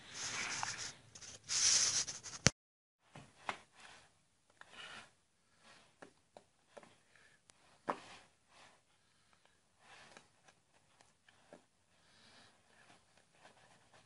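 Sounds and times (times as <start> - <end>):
camera rubbing on car body: 0.2 - 2.5.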